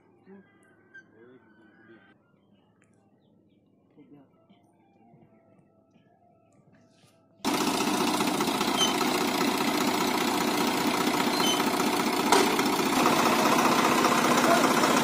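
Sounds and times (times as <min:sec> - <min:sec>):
tractor diesel engine running: 0:07.4 - 0:15.0.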